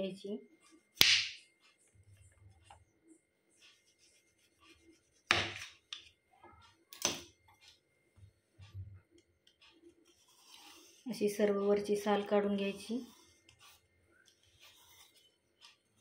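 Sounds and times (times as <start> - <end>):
faint rubbing and handling: 3.4 - 5.3, 9.5 - 16.0.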